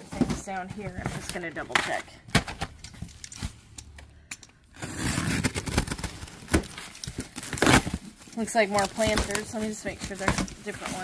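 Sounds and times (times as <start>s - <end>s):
packing material rustling: 4.8s - 11.0s.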